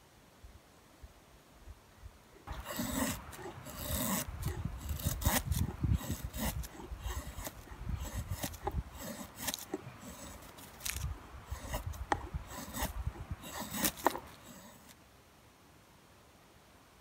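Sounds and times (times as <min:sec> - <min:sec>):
hatchet shaving wood: 0:02.4 - 0:15.0.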